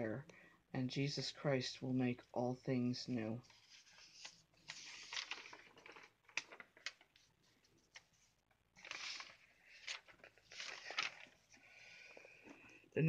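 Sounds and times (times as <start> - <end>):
paper rustling: 3.4 - 12.7
paper crinkling and clicks: 3.5 - 12.7.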